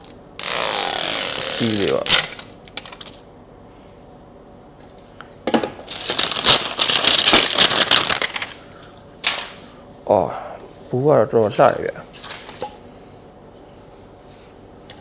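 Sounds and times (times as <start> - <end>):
wrapping crinkling and crackling: 5.8 - 8.6.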